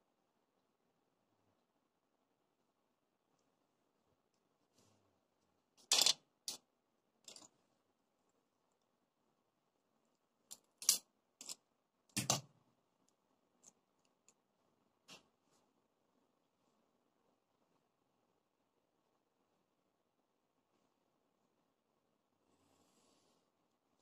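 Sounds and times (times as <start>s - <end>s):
pens and ruler clicking on desk: 7.2s - 7.5s, 10.5s - 11.6s.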